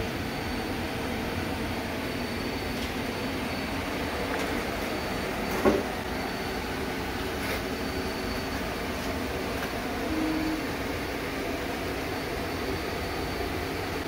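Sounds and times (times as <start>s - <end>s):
mechanical hum: 0.0s - 14.0s
brief low tone: 10.0s - 10.8s.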